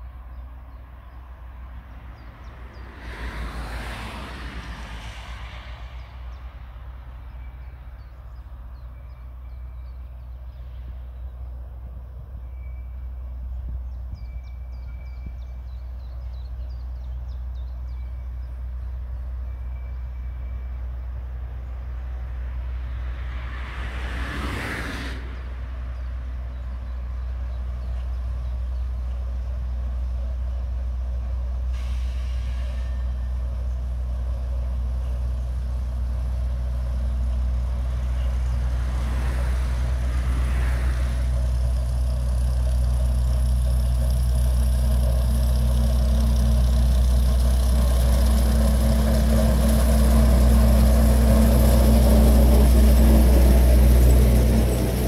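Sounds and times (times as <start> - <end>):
diesel locomotive engine drone: 0.0 - 55.0
short hiss: 31.7 - 33.0.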